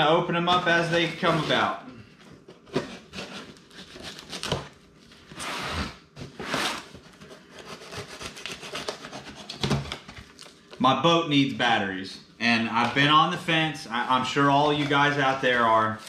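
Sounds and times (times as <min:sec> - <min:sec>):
cardboard rubbing and scraping: 0:00.5 - 0:01.7, 0:05.4 - 0:09.8.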